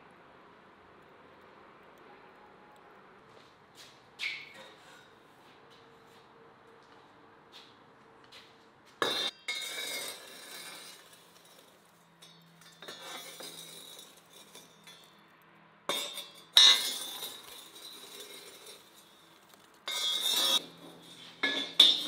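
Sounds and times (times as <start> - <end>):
metal rake scraping oven floor: 9.0 - 15.1, 15.9 - 22.0
coals clattering: 9.0 - 22.0.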